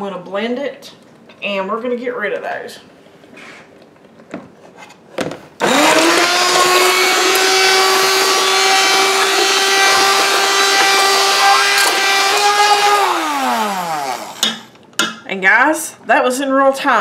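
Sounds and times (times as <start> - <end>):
immersion blender motor whining: 5.6 - 14.6.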